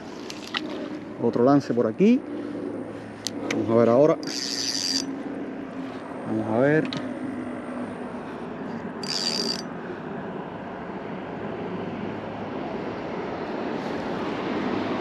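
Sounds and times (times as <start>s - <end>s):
fishing reel whir: 3.9s - 5.2s, 9.0s - 9.7s.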